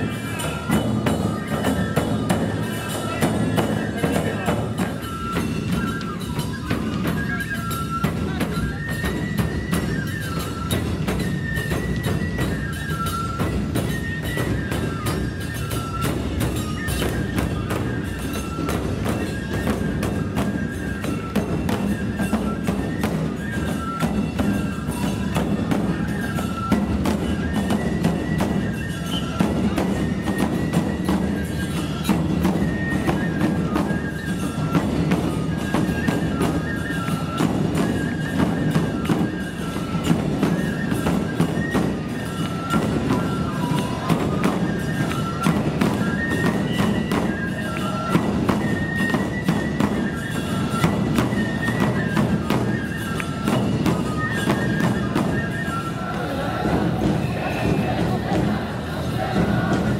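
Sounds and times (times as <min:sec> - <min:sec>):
small hand cymbals clashing: 0:00.0 - 0:55.9
bamboo flute melody: 0:00.0 - 0:59.9
taiko drums: 0:00.0 - 0:59.9.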